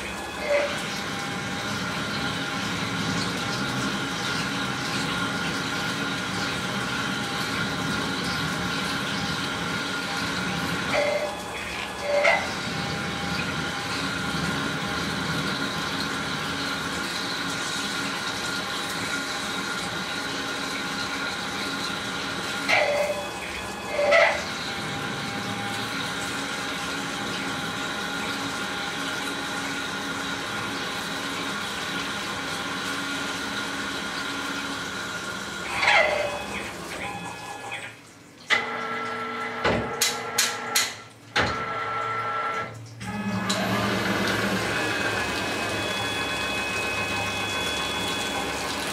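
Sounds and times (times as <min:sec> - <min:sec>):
lathe machine whine: 0:00.0 - 0:37.7, 0:41.8 - 0:48.9
coolant splashing: 0:00.0 - 0:48.9
high whine of spindle: 0:43.0 - 0:48.9.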